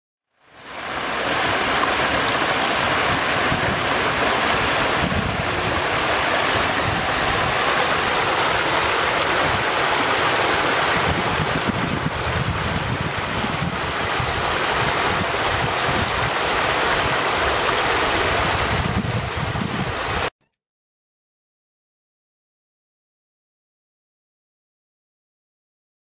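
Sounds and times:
floodwater rushing over rocks: 0.5 - 20.3.

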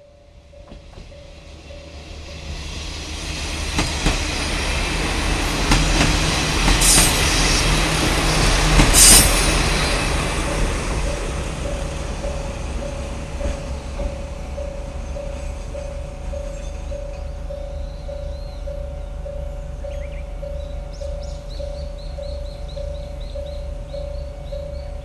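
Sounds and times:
diesel railcar running: 0.0 - 25.0
level-crossing bell ringing: 10.4 - 25.0.

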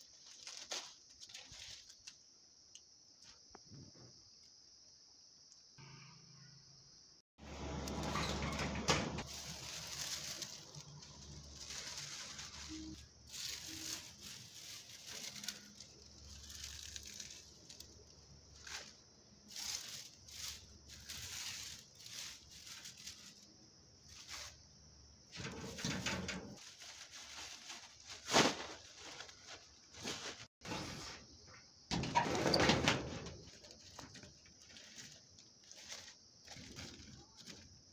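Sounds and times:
plastic bag crinkling: 0.0 - 2.0, 9.2 - 23.5, 26.6 - 30.5, 33.5 - 37.6
dry leaves rustling and crackling: 0.0 - 2.2, 7.8 - 24.6, 25.4 - 30.5, 33.4 - 37.6.

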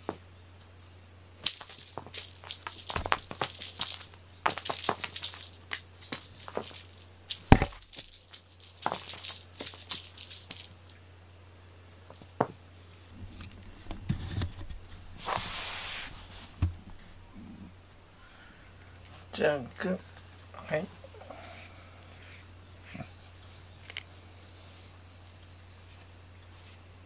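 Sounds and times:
low steady hum: 0.0 - 27.0
cat playing with toy: 1.4 - 11.0.

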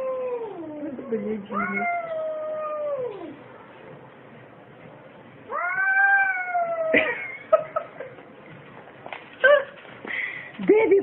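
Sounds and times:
cats yowling: 0.0 - 0.9, 1.5 - 3.4, 5.5 - 7.1.

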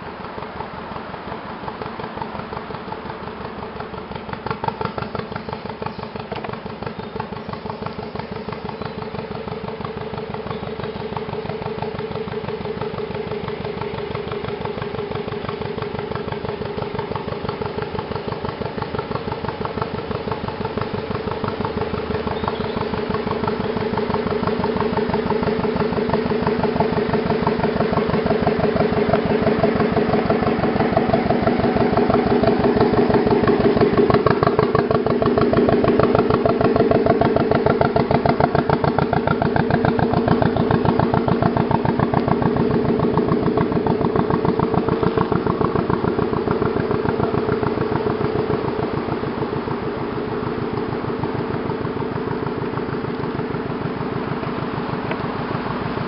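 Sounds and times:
boat engine chugging: 0.0 - 56.0.

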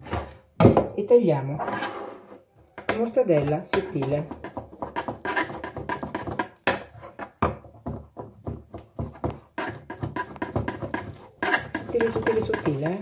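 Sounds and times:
knife chopping on cutting board: 3.7 - 13.0.

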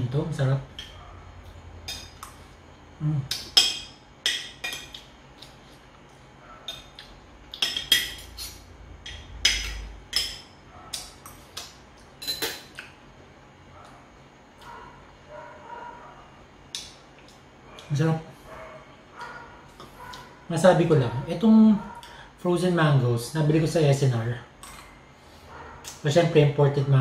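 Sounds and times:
cutlery clinking and scraping on plate: 6.6 - 10.4, 12.2 - 12.7.

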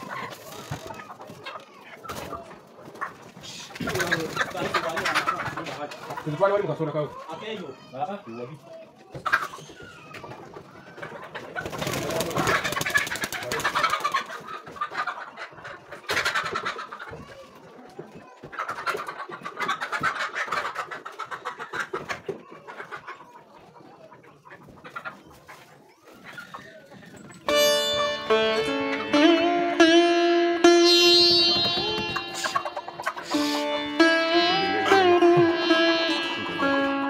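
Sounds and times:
hens squawking and clucking: 0.0 - 29.4, 30.8 - 37.0
wings flapping: 11.6 - 14.3.

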